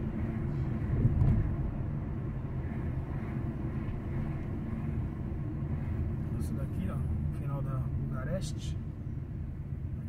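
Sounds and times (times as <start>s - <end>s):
vehicle engine and road noise: 0.0s - 10.0s
vehicle bump: 0.7s - 1.8s.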